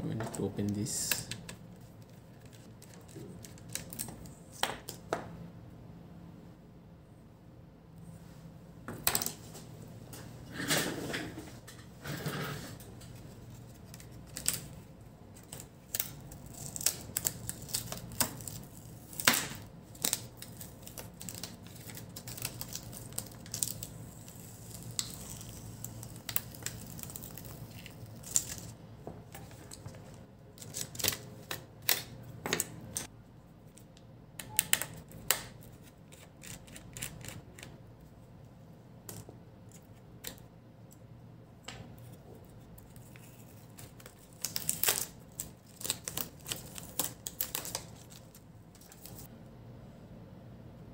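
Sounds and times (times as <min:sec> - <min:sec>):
low steady hum: 0:00.0 - 0:50.9
plastic film peeling crackles: 0:00.6 - 0:04.4, 0:12.9 - 0:28.8, 0:30.6 - 0:32.2, 0:42.5 - 0:49.3.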